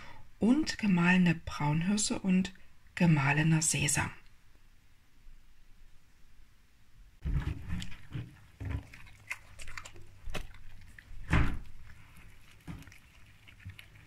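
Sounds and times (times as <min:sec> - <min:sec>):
dog eating from metal bowl: 0:07.4 - 0:14.0.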